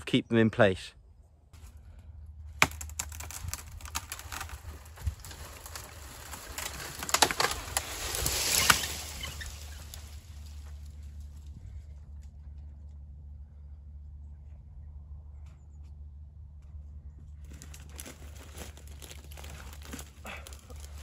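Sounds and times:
branches breaking: 2.5 - 11.3, 17.4 - 21.0
wood creaking and cracking: 2.6 - 11.2, 17.4 - 21.0.

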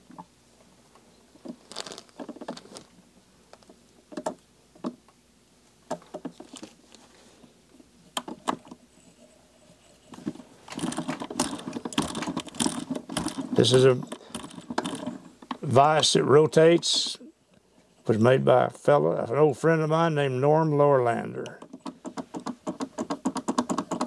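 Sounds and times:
vise jaw spinning rattle: 10.6 - 15.6.

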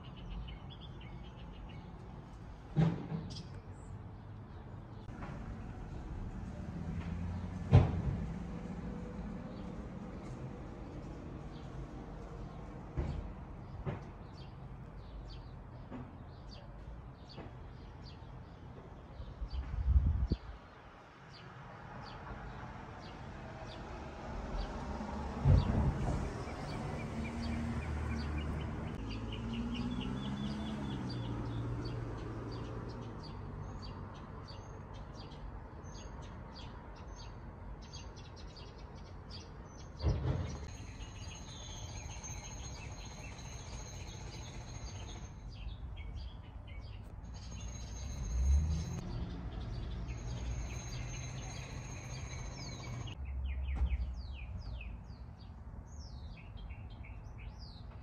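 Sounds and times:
small birds chirping: 0.0 - 2.4, 25.6 - 58.0
thump: 2.8 - 3.4, 7.6 - 8.3, 13.0 - 14.1, 25.4 - 26.4, 40.0 - 40.7, 53.7 - 54.2.

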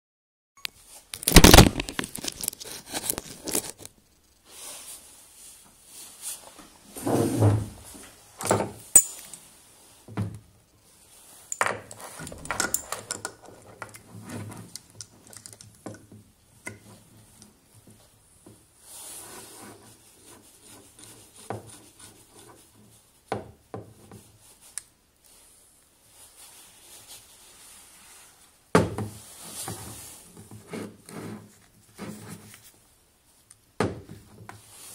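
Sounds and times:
metal tools clinking on workbench: 8.4 - 9.4, 11.5 - 13.4.

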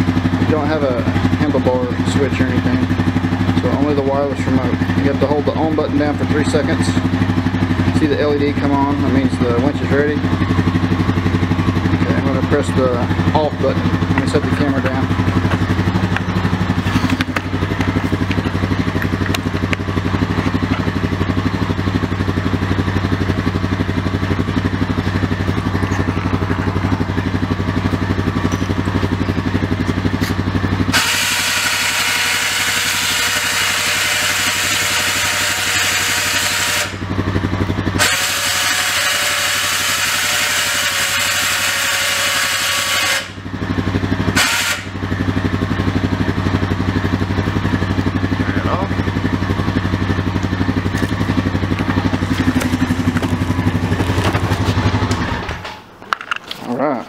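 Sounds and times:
engine idling: 0.0 - 57.0
electric winch motor whining: 30.9 - 37.1, 38.0 - 43.4, 44.3 - 45.0.

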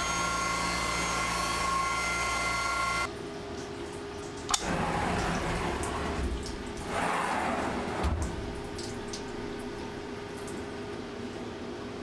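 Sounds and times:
mill spindle whining: 0.0 - 3.1.

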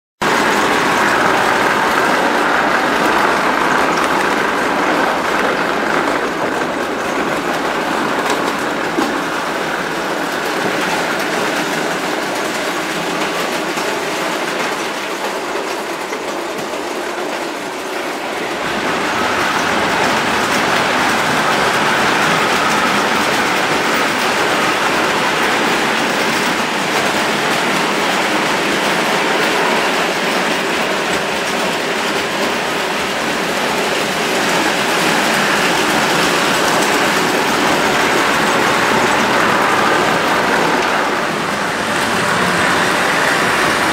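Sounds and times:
model train wheels rattling on track: 0.2 - 43.9.

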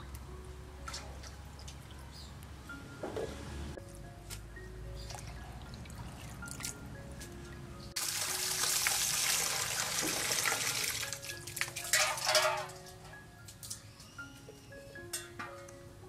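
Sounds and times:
tap water running into steel bowl: 8.0 - 12.7
water splashing into metal basin: 8.0 - 12.9
small drips and clicks: 13.5 - 13.8.

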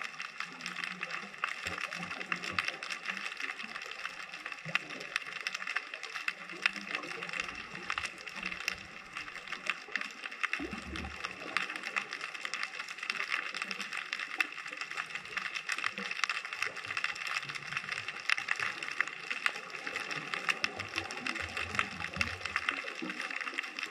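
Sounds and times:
low underwater rumble: 0.0 - 23.9
underwater crackle of clicks: 0.0 - 23.9.

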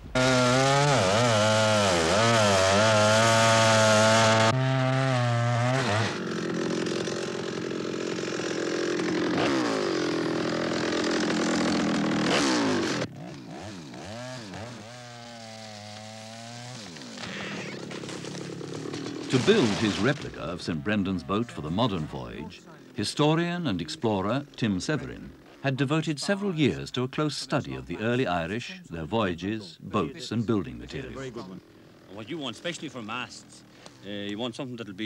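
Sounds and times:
chainsaw cutting wood: 0.0 - 21.0.

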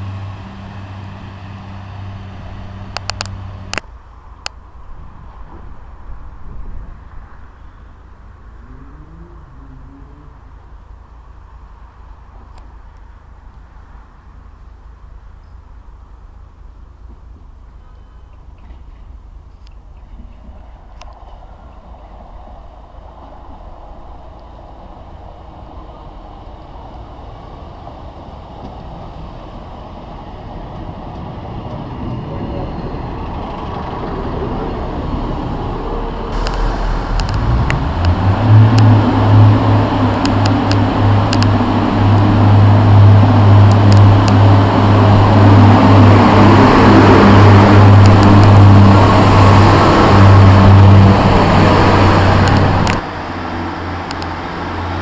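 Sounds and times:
diesel train engine running: 20.1 - 55.0.

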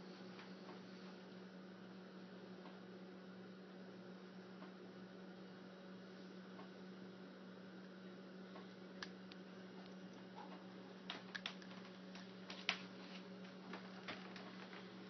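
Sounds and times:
faint low hum: 0.0 - 15.0
small animal chewing clicks: 8.6 - 12.8.

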